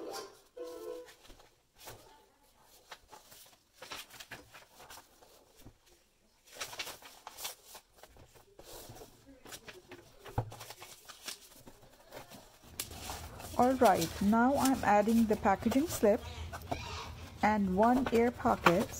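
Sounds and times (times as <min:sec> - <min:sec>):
background music: 0:00.0 - 0:01.1
paper rustling and crinkling: 0:01.1 - 0:18.9.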